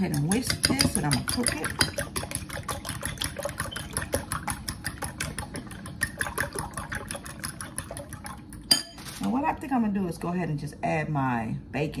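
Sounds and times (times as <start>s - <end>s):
whisk clinking against glass bowl: 0.0s - 9.1s
liquid sloshing: 0.0s - 9.4s.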